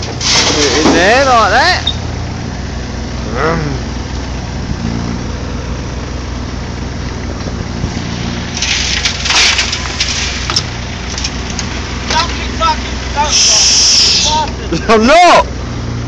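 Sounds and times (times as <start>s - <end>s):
diesel engine running: 0.0s - 16.0s
mini digger working: 0.0s - 16.0s
earth rattling into skip: 7.8s - 12.4s.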